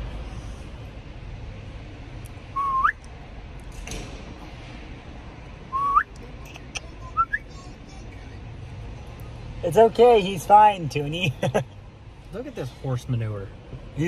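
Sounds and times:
person whistling: 2.6s - 3.0s, 5.7s - 6.1s, 7.2s - 7.4s.

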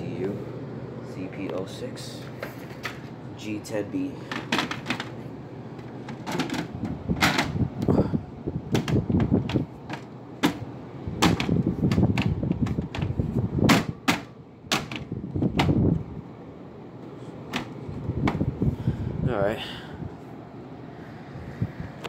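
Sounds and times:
air conditioner fan: 0.0s - 22.0s
phone handling clicks and knocks: 4.3s - 5.2s, 8.7s - 13.1s.

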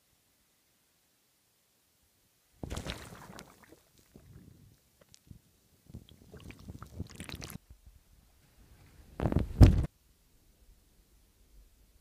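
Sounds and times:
muffled water sloshing and gurgling: 2.6s - 4.7s, 5.9s - 7.6s.

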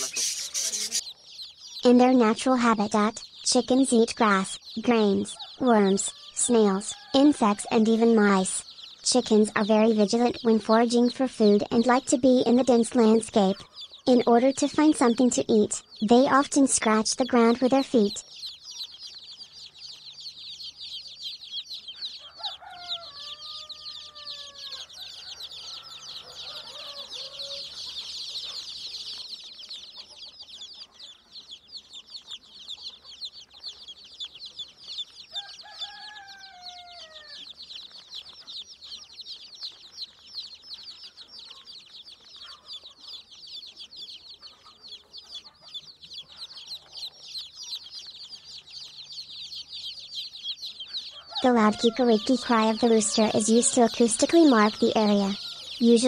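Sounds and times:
adult chicken calling: 0.0s - 1.1s, 5.2s - 7.8s, 21.8s - 28.8s, 35.2s - 37.6s, 50.6s - 56.0s
chicks peeping: 0.0s - 56.0s.

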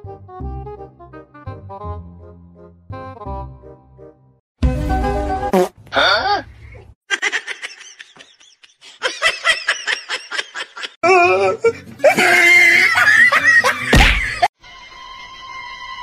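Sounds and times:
person giggling: 6.0s - 14.5s
wavering voice: 11.0s - 12.2s.

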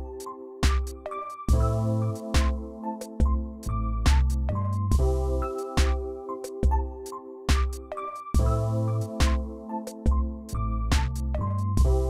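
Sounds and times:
synth chords: 0.0s - 12.0s
low bass line: 10.6s - 12.0s.

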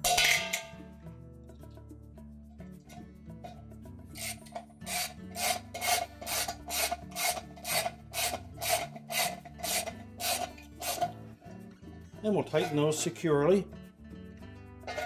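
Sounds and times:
ratchet pawl clicking: 4.2s - 11.1s.

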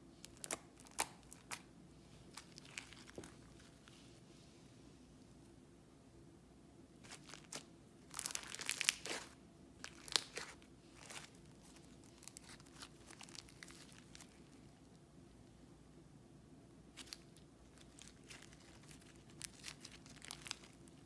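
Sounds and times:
slime crackling when squeezed: 7.1s - 14.6s, 17.0s - 21.0s.

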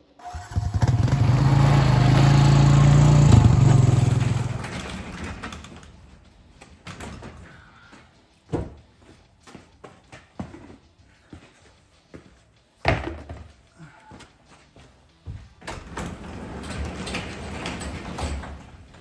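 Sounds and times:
atv engine running: 0.2s - 5.3s.

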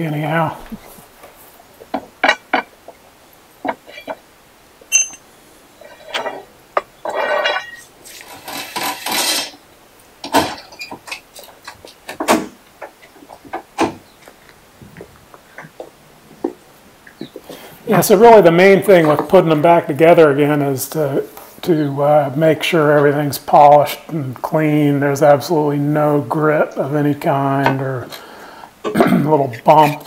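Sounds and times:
metal tools clinking: 3.7s - 4.2s, 4.9s - 6.4s, 7.0s - 9.6s.

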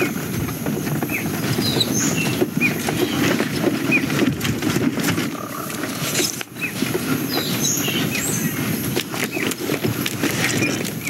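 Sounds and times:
low rumbling rattle: 1.1s - 7.5s.

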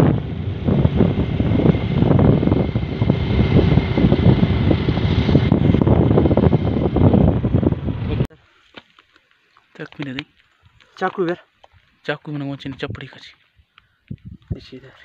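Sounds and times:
motorcycle engine running: 0.0s - 8.3s
wind buffeting the microphone: 0.0s - 8.3s, 10.6s - 15.0s.

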